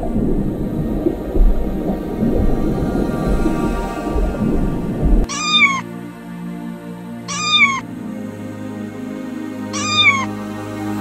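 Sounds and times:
soft background music: 0.0 - 11.0
kitten meowing: 5.3 - 5.8, 7.3 - 7.8, 9.8 - 10.3.

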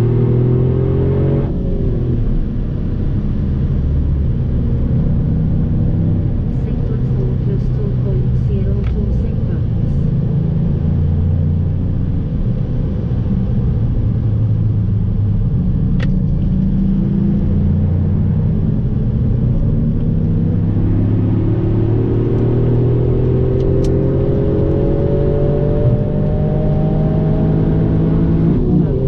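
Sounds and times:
car engine accelerating: 0.0 - 29.0
road noise inside car: 0.0 - 29.0.

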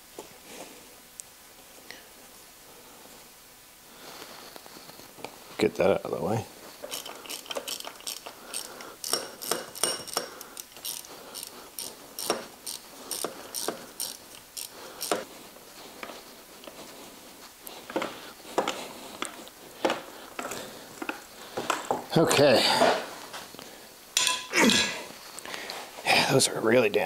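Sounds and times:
socket ratchet clicking: 6.8 - 15.2.

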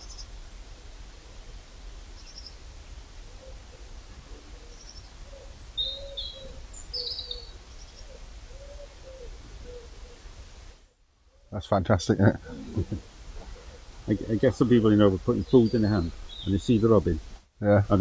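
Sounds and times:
small birds chirping: 0.0 - 0.4, 2.1 - 10.2, 12.3 - 17.3
low steady rumble: 7.5 - 18.0.

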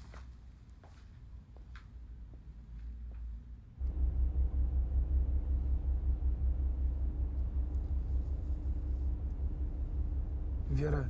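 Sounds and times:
faint hum: 0.3 - 11.0
car interior rumble: 3.8 - 11.0.

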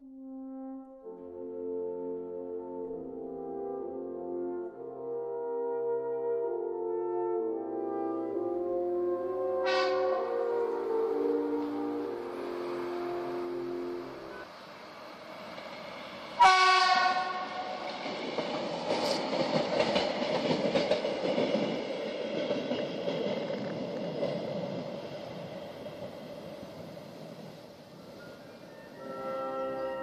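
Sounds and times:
train horn blast: 0.3 - 14.5, 16.4 - 17.8, 28.7 - 30.0
wheels clicking over rail joints: 17.0 - 26.9.

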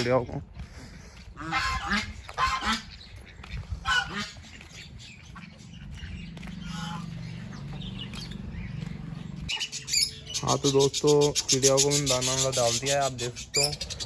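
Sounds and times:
geese honking: 1.3 - 7.9, 9.5 - 14.0.

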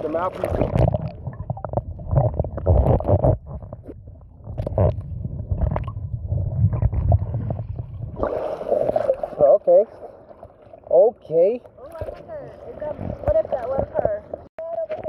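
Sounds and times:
underwater rumble and gurgling: 0.0 - 10.9, 11.6 - 15.0
knocks and bubbles from swimmer: 0.4 - 9.4.

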